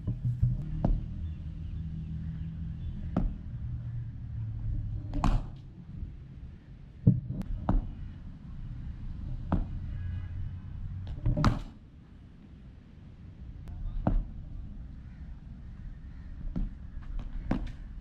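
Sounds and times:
low steady rumble: 0:00.0 - 0:11.5.

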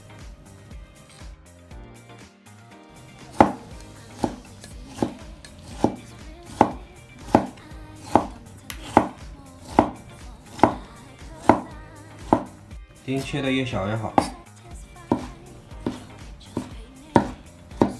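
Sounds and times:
cleaver slicing a tomato: 0:03.1 - 0:12.6, 0:14.0 - 0:14.4, 0:15.0 - 0:17.9
knife blade knocking on board: 0:03.3 - 0:12.6, 0:14.2 - 0:14.4, 0:15.1 - 0:17.9.

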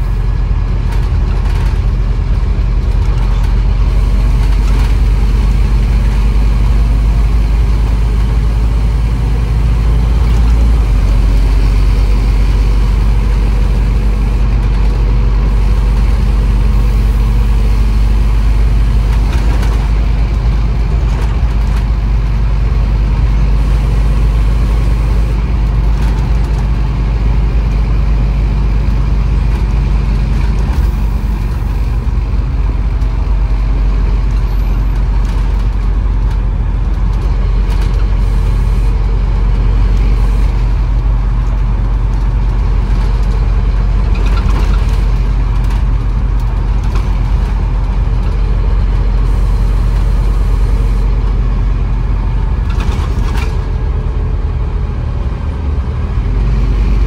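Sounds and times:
bus diesel engine drone: 0:00.0 - 0:57.0.

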